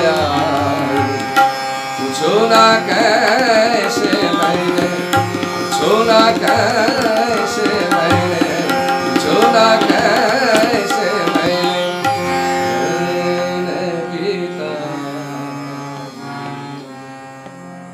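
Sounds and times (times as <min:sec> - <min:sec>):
harmonium notes: 0:00.0 - 0:17.9
tanpura drone: 0:00.0 - 0:17.9
tabla strokes: 0:02.5 - 0:12.6.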